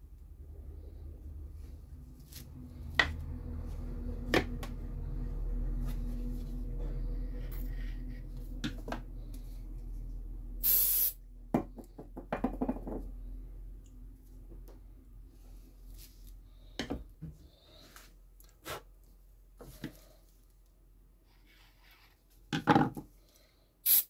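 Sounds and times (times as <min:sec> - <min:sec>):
low steady hum: 0:00.0 - 0:11.6, 0:12.8 - 0:21.8
short hiss: 0:10.6 - 0:11.2
wooden blocks knocking and tapping: 0:11.5 - 0:13.1, 0:22.5 - 0:23.1.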